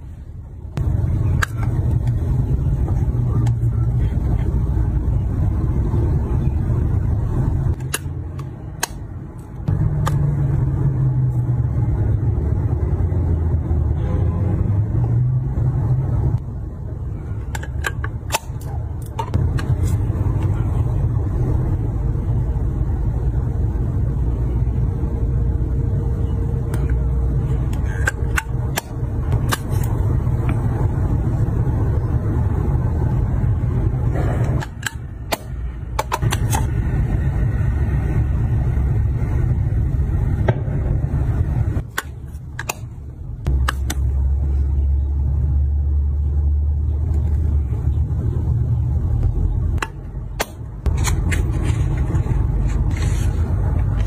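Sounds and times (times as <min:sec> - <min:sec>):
low rumble: 0:36.6 - 0:54.0.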